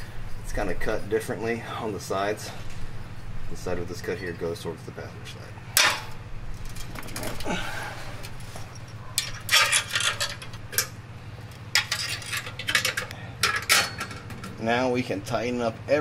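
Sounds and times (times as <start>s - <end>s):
metallic clinks and scrapes: 8.6s - 11.0s, 11.7s - 14.3s.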